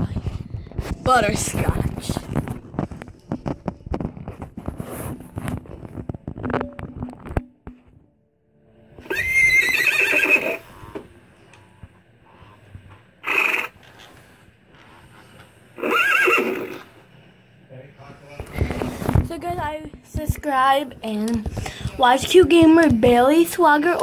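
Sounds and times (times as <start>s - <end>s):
rustling and knocking from handling: 0.1s - 7.9s.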